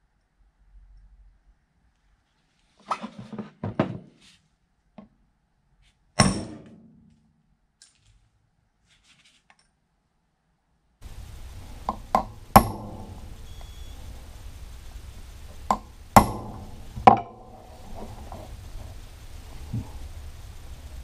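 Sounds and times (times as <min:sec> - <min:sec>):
hammer knocking on metal: 0:11.0 - 0:20.3.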